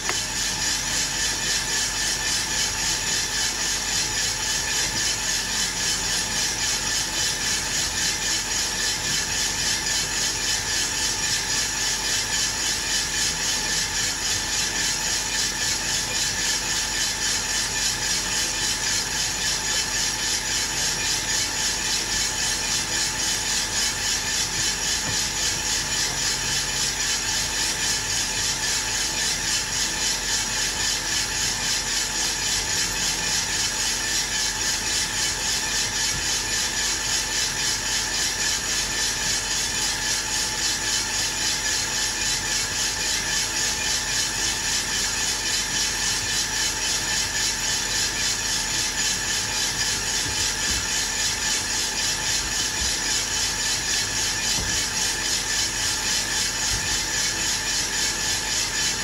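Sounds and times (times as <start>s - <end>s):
coffee beans tumbling in a drum: 0.0s - 3.9s, 16.8s - 59.0s.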